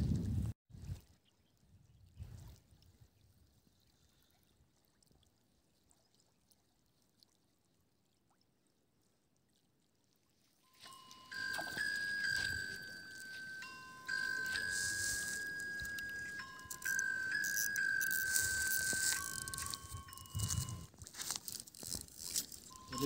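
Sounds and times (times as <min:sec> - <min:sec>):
bright chime-like music: 0:10.7 - 0:20.9, 0:22.2 - 0:23.0.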